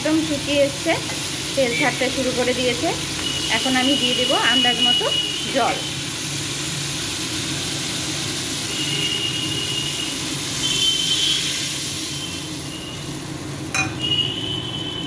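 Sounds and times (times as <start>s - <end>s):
oil sizzling in a pan: 0.0s - 15.0s
thin high tones: 1.6s - 2.4s.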